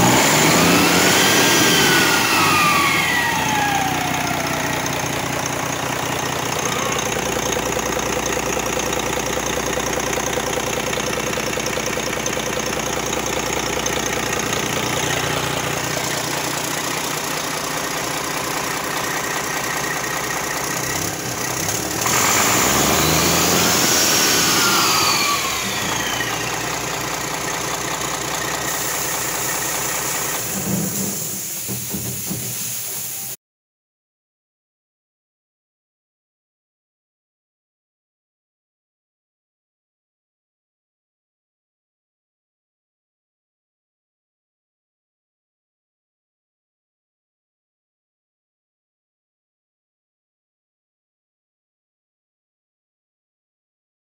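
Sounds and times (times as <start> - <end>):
diesel engine idling and revving: 0.0 - 33.2.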